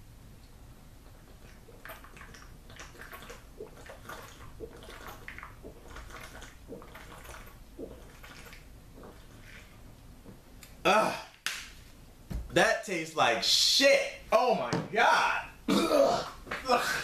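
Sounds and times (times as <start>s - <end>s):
person gulping a drink: 1.0s - 9.8s
liquid sloshing in a bottle: 1.0s - 10.4s.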